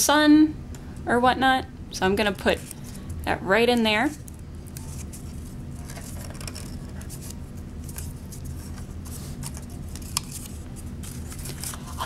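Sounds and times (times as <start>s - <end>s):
steady low hum: 0.0s - 12.0s
paper rustling and crinkling: 4.8s - 12.0s.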